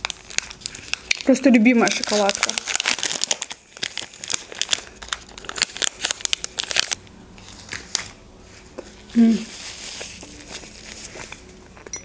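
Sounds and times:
plastic wrapper crinkling: 0.0s - 11.9s.

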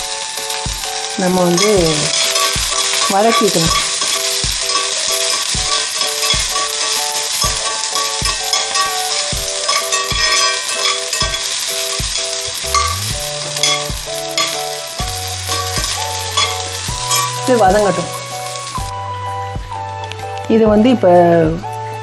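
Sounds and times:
vegetables sizzling in hot oil: 0.0s - 19.0s
background music with beat: 0.0s - 22.0s
spatula scraping a pan: 0.5s - 18.9s.

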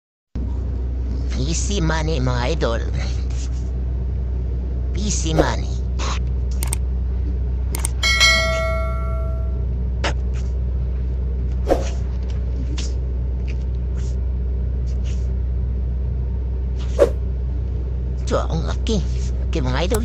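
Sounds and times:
low engine rumble: 0.4s - 20.0s
ringing metallic clang: 8.0s - 9.6s.

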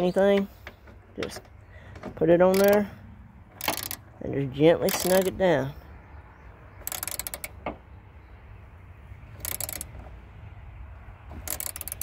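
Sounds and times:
ratchet clicking: 2.5s - 2.8s, 3.6s - 4.0s, 4.9s - 5.3s, 6.8s - 7.6s, 9.4s - 9.9s, 11.4s - 12.0s.

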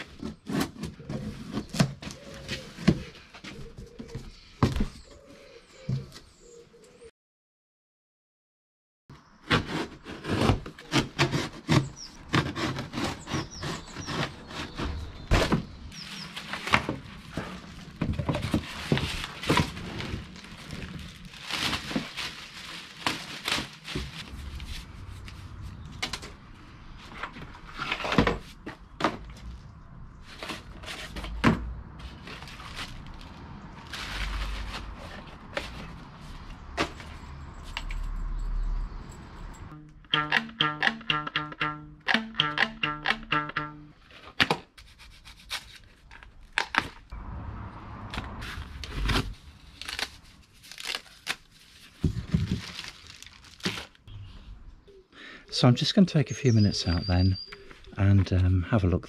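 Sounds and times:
cardboard and parts knocking: 10.4s - 15.8s, 16.4s - 20.9s, 23.0s - 24.3s, 27.1s - 29.5s, 52.0s - 52.9s
plastic wrap rustling: 15.4s - 25.6s, 32.0s - 37.1s, 48.5s - 54.1s.

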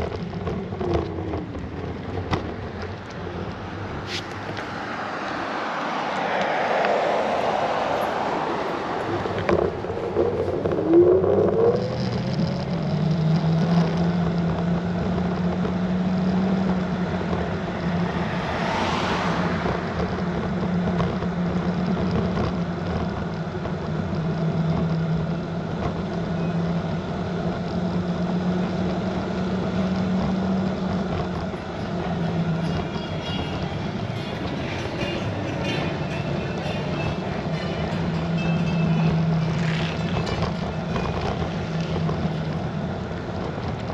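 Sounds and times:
electric scooter motor whine: 0.0s - 18.0s, 19.6s - 43.9s
wind noise: 0.0s - 27.4s
tyre noise: 0.0s - 43.9s
rushing noise: 1.6s - 13.0s, 31.3s - 43.9s.

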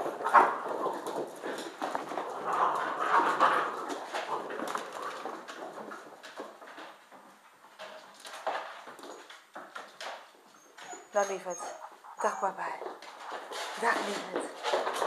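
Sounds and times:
puppy making small sounds: 10.5s - 12.9s.

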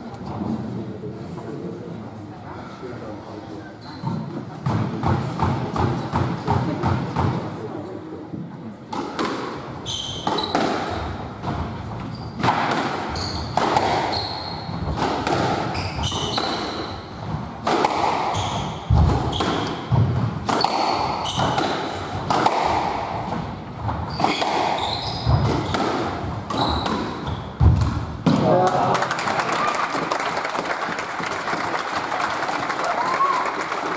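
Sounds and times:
court shoes squeaking: 3.7s - 7.3s, 8.9s - 28.4s
squash ball cracking off rackets: 12.4s - 16.9s, 17.6s - 23.1s, 24.1s - 28.8s.

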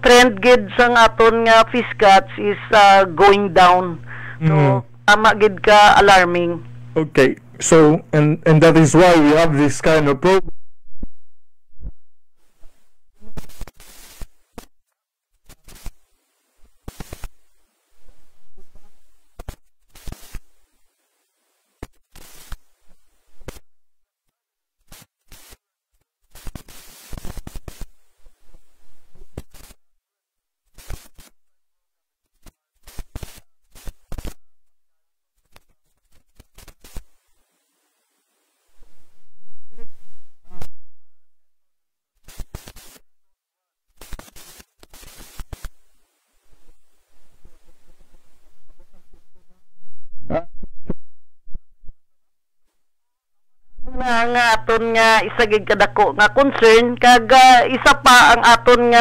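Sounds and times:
broken-up speech: 0.0s - 10.5s, 53.9s - 59.0s
harsh crackling noise: 12.4s - 23.7s, 24.8s - 29.8s, 30.7s - 31.4s, 32.3s - 34.5s, 35.4s - 38.6s, 42.2s - 43.1s, 43.9s - 46.9s, 53.8s - 59.0s.

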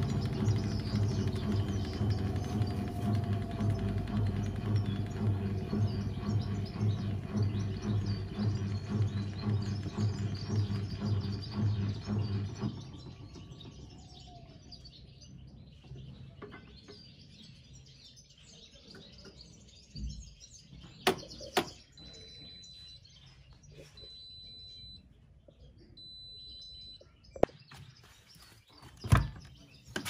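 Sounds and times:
music with low beat: 0.0s - 12.8s
faint birds chirping: 0.0s - 30.0s.

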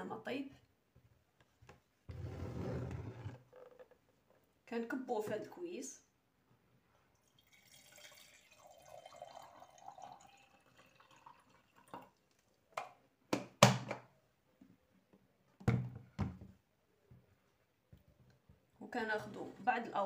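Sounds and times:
water pouring into glass jug: 7.1s - 12.3s.

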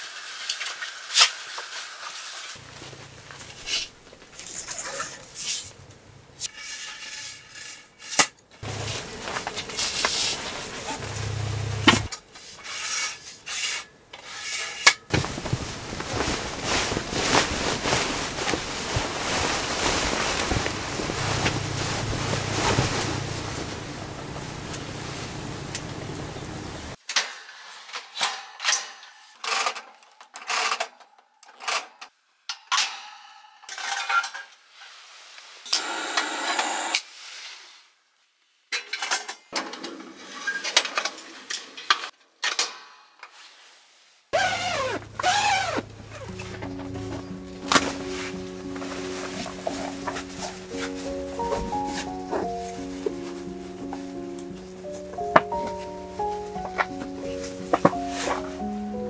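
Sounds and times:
duvet rustling and swishing: 8.6s - 12.0s, 15.1s - 27.0s, 43.5s - 59.0s
low steady hum: 8.6s - 12.1s, 15.2s - 27.0s
music: 20.4s - 24.9s, 44.5s - 59.0s.

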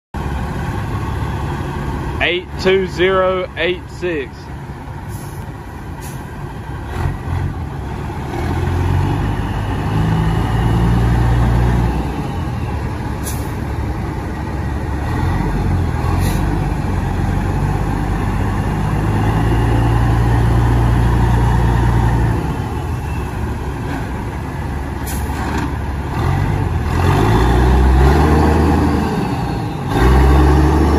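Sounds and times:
truck diesel engine revving: 0.2s - 30.9s.

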